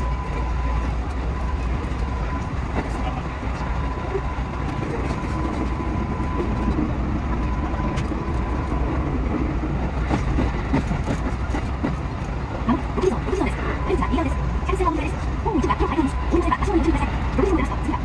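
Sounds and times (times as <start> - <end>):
electric train rumble: 0.0 - 18.0
steady high tone: 12.7 - 18.0.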